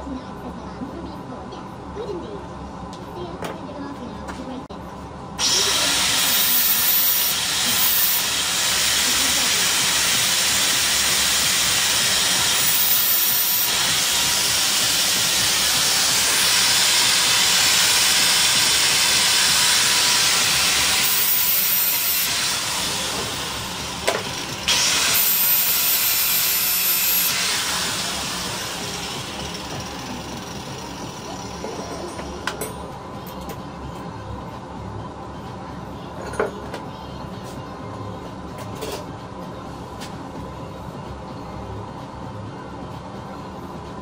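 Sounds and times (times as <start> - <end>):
angle grinder grinding steel: 5.4 - 32.3.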